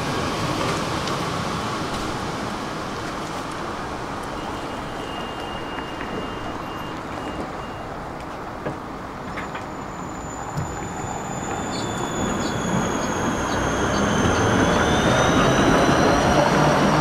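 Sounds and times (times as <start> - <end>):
tram rumbling on rails: 0.0 - 17.0
high-pitched pulsing tone: 10.0 - 17.0.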